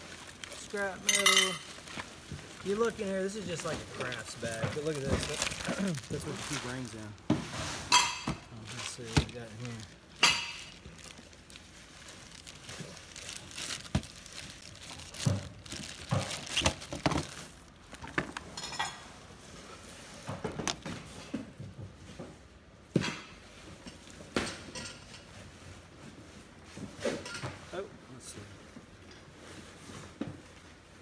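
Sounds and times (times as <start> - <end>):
small hard objects clinking: 0.0 - 7.2, 7.9 - 19.0
bag rustling: 0.0 - 18.4.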